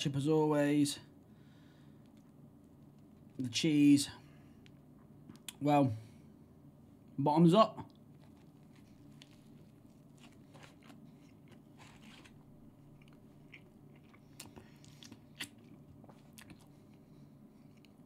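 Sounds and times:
low room hum: 0.0 - 18.0
person chewing food: 7.9 - 18.0.

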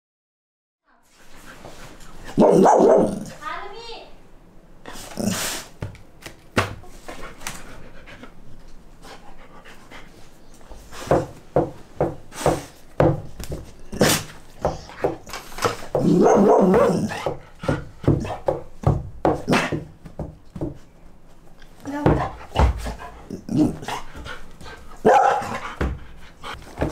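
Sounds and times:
dog barking and whimpering: 2.3 - 3.3, 16.0 - 17.3, 25.0 - 25.6.

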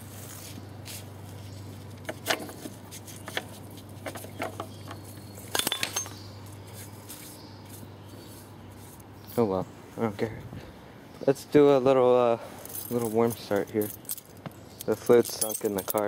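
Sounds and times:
small hard objects clinking: 4.1 - 6.6, 12.6 - 16.0.

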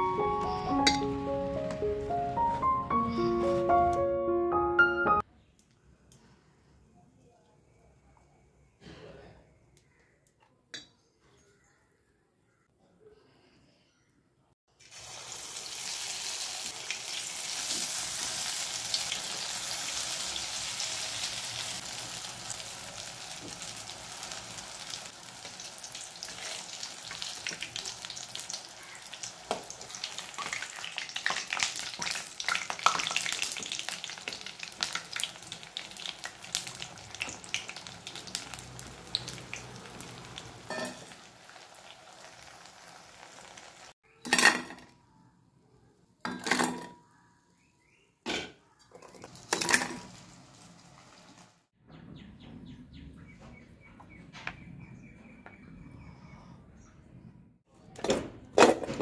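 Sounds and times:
food sizzling in hot oil: 14.7 - 44.0, 49.3 - 51.7.

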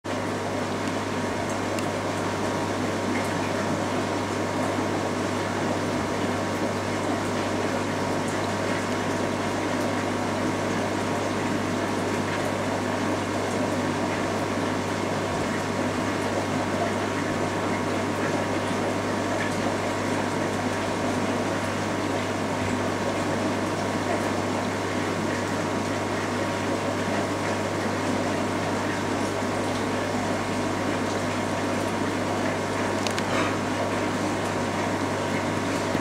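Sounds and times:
air pump humming: 25.5 - 36.0.

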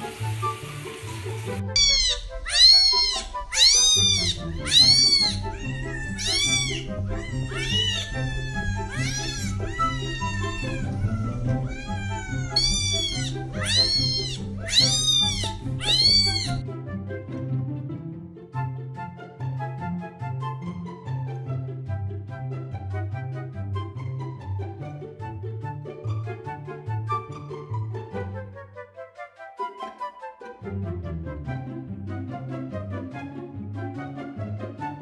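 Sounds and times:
background music: 0.0 - 35.0
kitten meowing: 1.8 - 16.6.

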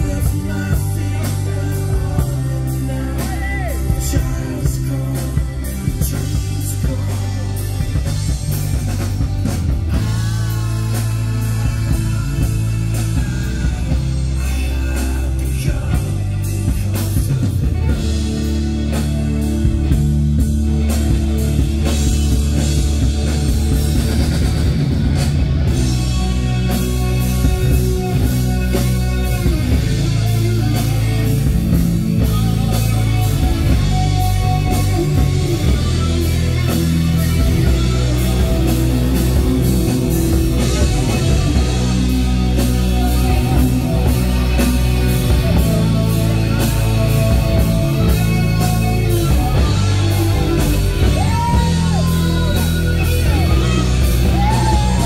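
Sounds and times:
person singing: 0.0 - 9.1, 9.8 - 19.6, 25.7 - 55.0
loud rock music: 0.0 - 55.0.

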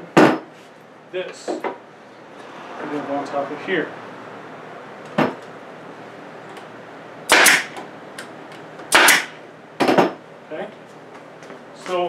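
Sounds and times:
nail gun firing: 7.3 - 7.8, 8.9 - 10.0.

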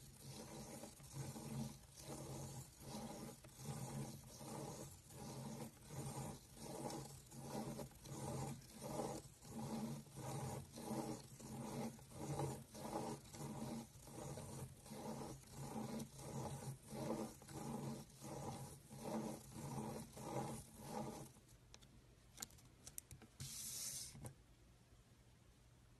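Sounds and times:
pen scratching on paper: 0.0 - 21.4
plastic gear wheel rubbing: 0.0 - 21.4.

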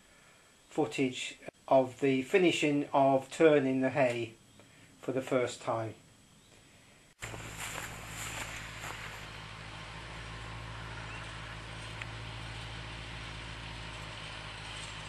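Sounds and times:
tractor engine running: 7.2 - 15.0.

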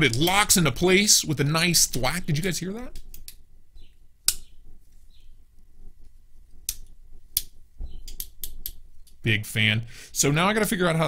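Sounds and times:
multi-tool metallic clicks and snaps: 0.0 - 0.4, 2.9 - 3.5, 4.2 - 4.5, 6.6 - 9.2.

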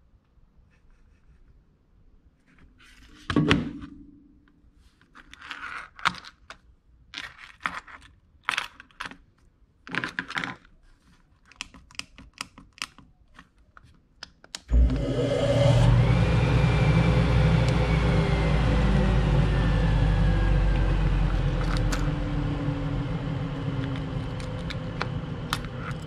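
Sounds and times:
steady loud noise: 14.7 - 26.0.

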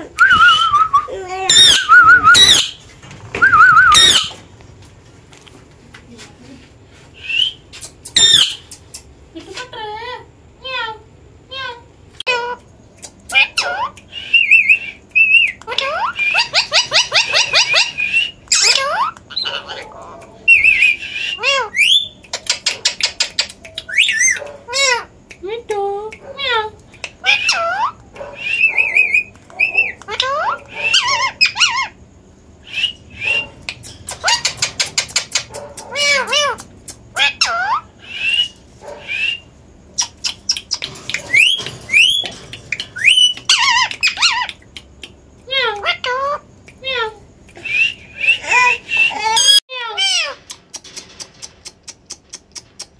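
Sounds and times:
parakeet chatter and squawks: 1.1 - 2.8, 3.9 - 4.4, 7.1 - 32.0, 32.6 - 52.9
parakeet rising whistles: 3.4 - 4.3.

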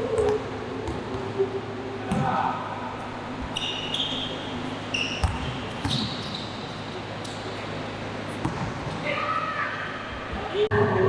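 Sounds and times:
shoe squeaks: 3.5 - 6.8.

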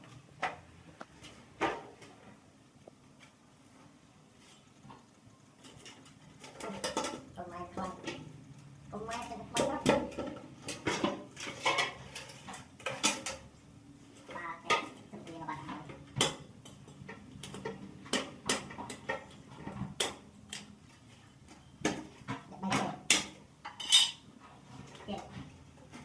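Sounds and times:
knife clinking on metal basin: 23.1 - 24.2.

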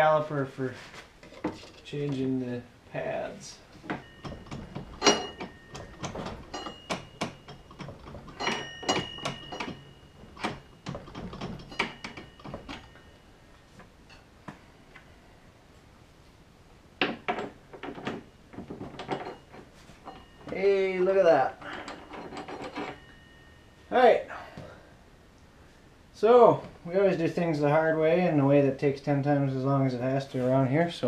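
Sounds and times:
metal tools clinking and scraping: 1.2 - 2.3, 3.7 - 13.2, 17.0 - 24.0.

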